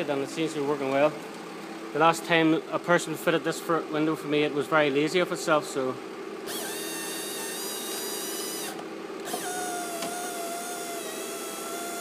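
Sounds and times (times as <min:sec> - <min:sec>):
power window motor whine: 0:06.5 - 0:12.0.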